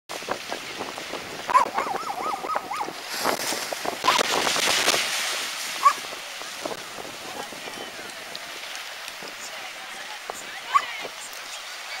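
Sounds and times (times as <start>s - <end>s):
hiss of wind or surf: 0.1s - 12.0s.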